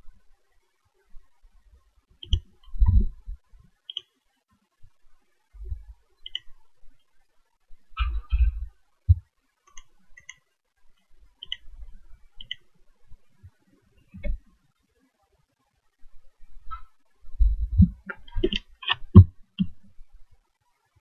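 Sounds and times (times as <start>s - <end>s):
computer mouse clicking: 2.2s - 3.0s, 3.9s - 4.2s, 6.2s - 6.7s, 9.7s - 12.7s, 17.7s - 19.9s
low dull thumps: 2.6s - 3.5s, 16.7s - 19.9s.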